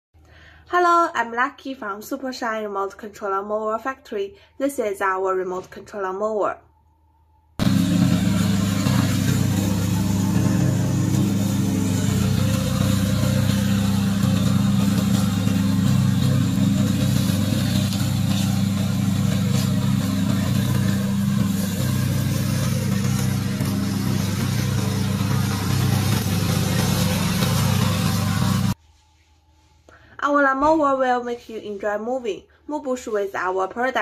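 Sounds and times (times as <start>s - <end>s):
mower engine running: 7.6s - 28.8s.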